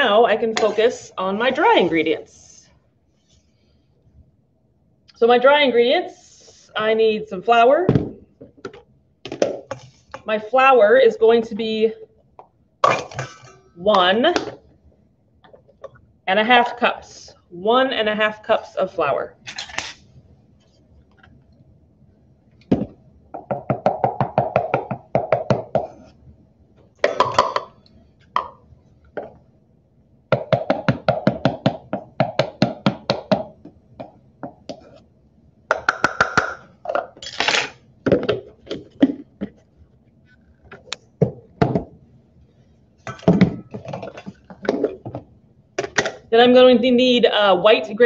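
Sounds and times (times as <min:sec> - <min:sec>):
cup knocking on steel bowl: 0:27.0 - 0:27.7
measuring cups tapping and scraping: 0:30.3 - 0:35.1.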